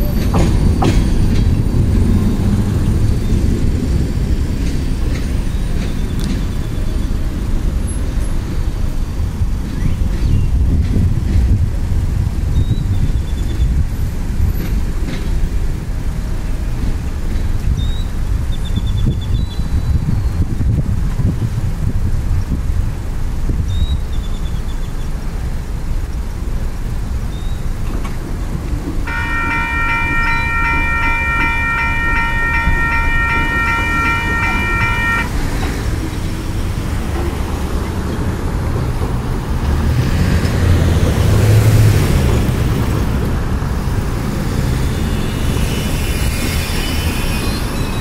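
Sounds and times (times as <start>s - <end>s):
road traffic rumble: 0.0s - 48.0s
train horn blast: 29.0s - 36.0s
vehicle passing: 29.1s - 47.2s.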